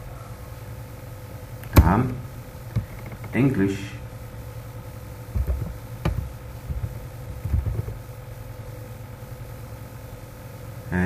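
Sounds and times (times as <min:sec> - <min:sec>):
steady low hum: 0:00.0 - 0:11.0
keyboard keystrokes: 0:05.4 - 0:08.0.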